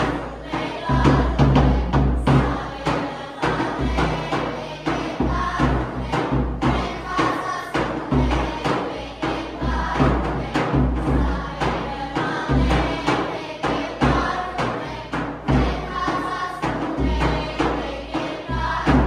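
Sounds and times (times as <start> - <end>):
drum beating dance rhythm: 0.0 - 19.0
group singing folk song: 0.0 - 19.0.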